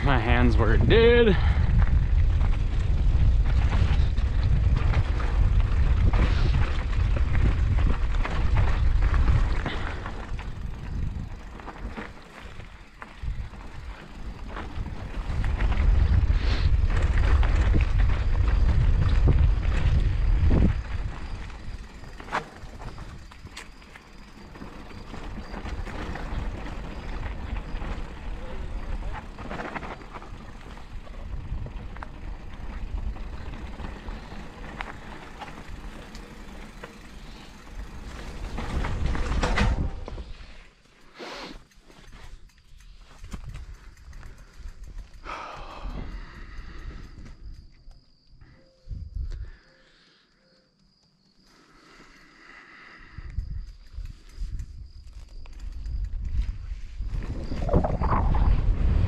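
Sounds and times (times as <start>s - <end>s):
wind rumbling on microphone: 0.0s - 40.6s, 42.1s - 49.6s, 53.0s - 59.0s
tyres crunching on dirt: 0.0s - 45.2s
mountain bike rattling on dirt: 0.0s - 49.2s, 51.4s - 59.0s
bike knocks and rattles: 31.6s - 41.0s.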